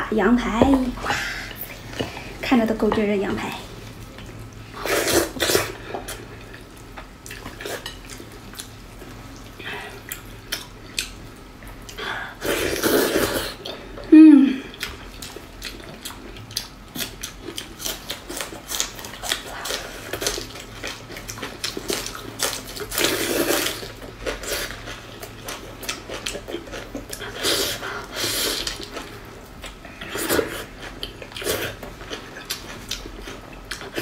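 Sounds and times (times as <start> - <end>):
wet chewing and lip-smacking: 14.7 - 28.0, 28.6 - 34.0.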